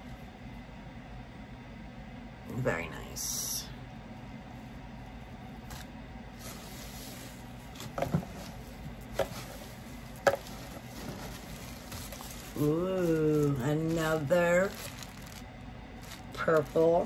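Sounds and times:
steady low hum: 0.0s - 17.0s
hands rummaging in paper shred: 5.7s - 17.0s.

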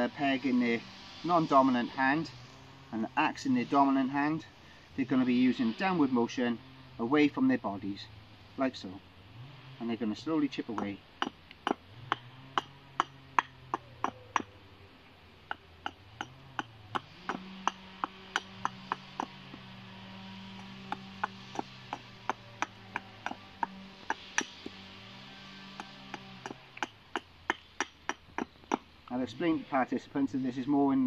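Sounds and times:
axe chopping wood: 10.8s - 14.5s, 15.5s - 24.9s, 25.7s - 28.8s.

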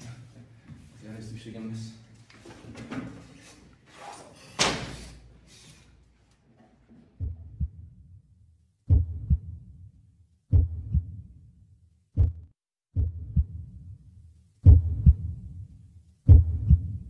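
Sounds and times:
heartbeat double thumps: 7.2s - 7.9s, 8.9s - 9.7s, 10.5s - 11.3s, 12.2s - 13.8s, 14.6s - 15.5s, 16.3s - 17.0s.

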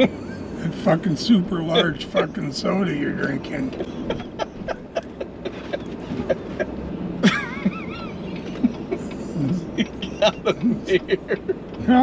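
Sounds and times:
car cabin road noise: 0.0s - 12.0s
high-pitched wavering laugh: 1.6s - 2.5s, 3.7s - 11.6s.

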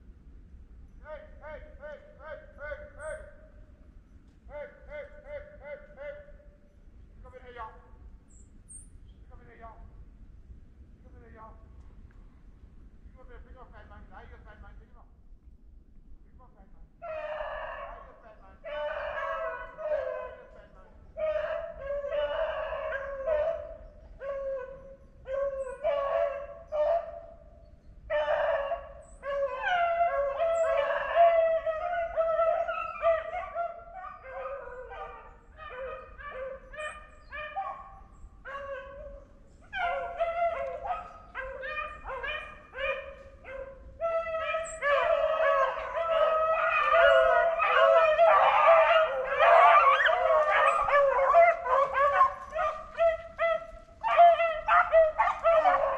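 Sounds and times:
beagles baying: 17.0s - 55.9s.

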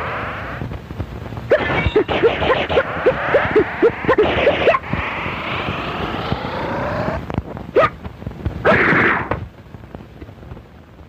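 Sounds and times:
noisy bursts with upward glide: 0.0s - 0.7s, 1.5s - 7.8s
rising sweeping tone: 1.5s - 7.4s.

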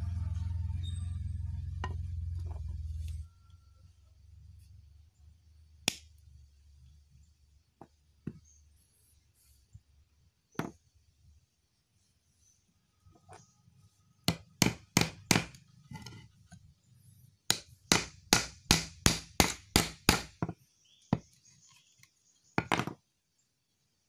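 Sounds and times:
hammer hitting nail into wood: 14.3s - 15.6s, 17.5s - 20.5s.

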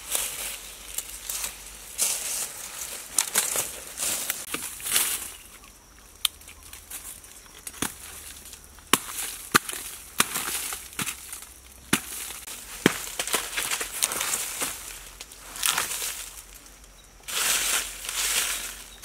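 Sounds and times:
dry leaves rustling: 0.0s - 19.0s
hand tool chopping log: 8.8s - 14.7s.

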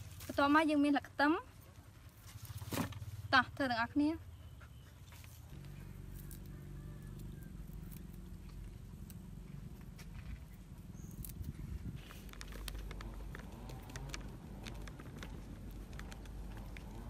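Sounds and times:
plastic bag crinkling: 12.0s - 17.0s.

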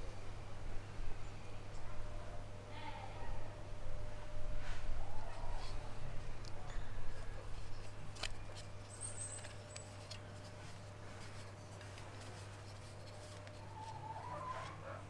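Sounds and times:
steady low hum: 0.0s - 15.0s
plastic bottle handling scratches: 7.1s - 14.8s.

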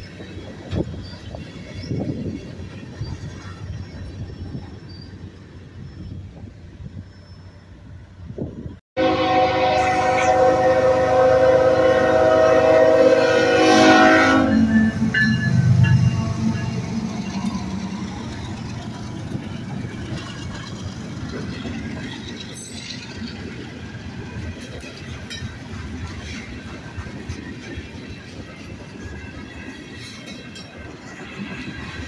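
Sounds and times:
freight cars clattering on rails: 0.0s - 5.3s, 14.8s - 32.0s
locomotives rumbling past: 0.0s - 32.0s
locomotive horn chord: 9.0s - 17.1s.

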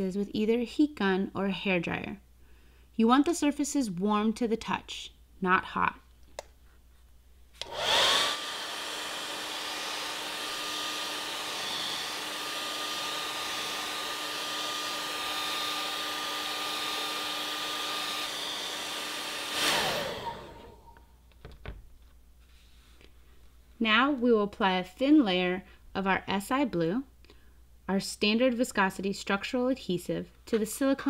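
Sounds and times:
rush of blowing air: 7.6s - 20.9s
hair dryer motor whine: 7.6s - 21.0s.

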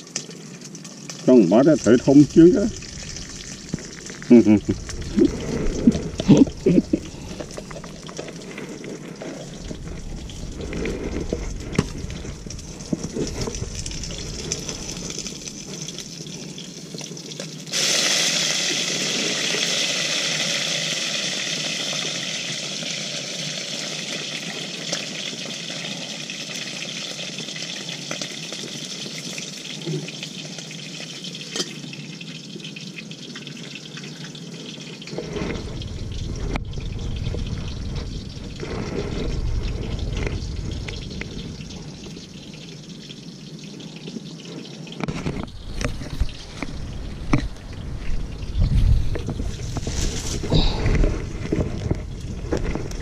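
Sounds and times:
rustling and handling sounds: 45.1s - 53.0s.

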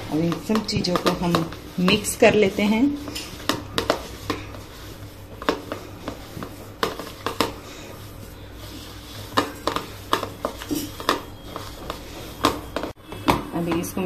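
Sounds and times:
mixture mashed by hand in bowl: 0.0s - 14.0s
fingers knocking on bowl: 0.2s - 2.5s.

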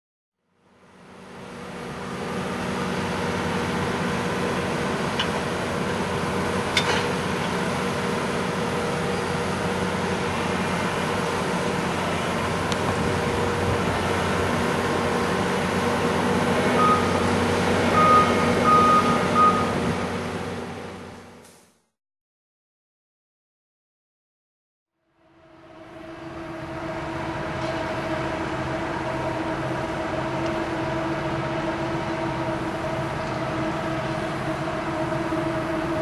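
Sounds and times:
diesel engine running: 0.6s - 21.5s, 25.4s - 36.0s
warning alarm beeps: 16.8s - 17.3s, 17.9s - 19.8s.

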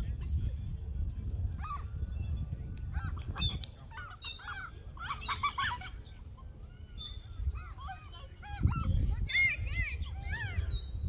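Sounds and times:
gulls calling: 2.8s - 11.0s.

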